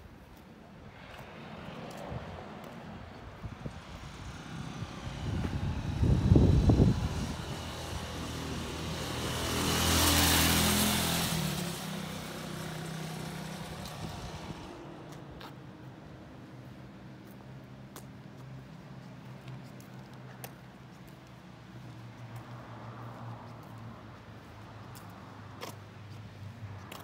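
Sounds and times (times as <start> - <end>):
passing vehicle engine and tyres: 0.7 - 27.0
wind buffeting microphone: 0.9 - 9.2.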